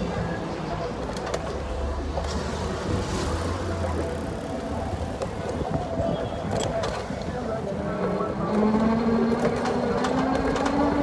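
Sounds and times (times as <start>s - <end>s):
car and truck engines: 0.0s - 11.0s.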